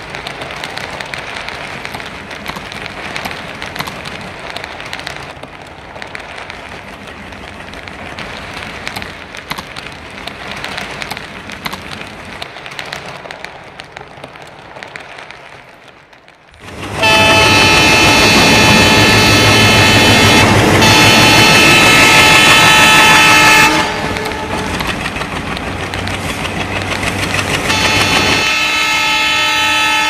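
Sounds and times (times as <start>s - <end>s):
model train wagons rattling: 0.0s - 30.0s.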